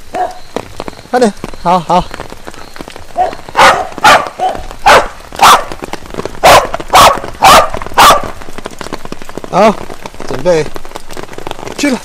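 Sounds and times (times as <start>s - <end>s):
dog barking: 0.1s - 0.4s, 3.2s - 5.8s, 6.4s - 8.4s
dog yipping: 3.2s - 5.7s, 6.4s - 8.3s.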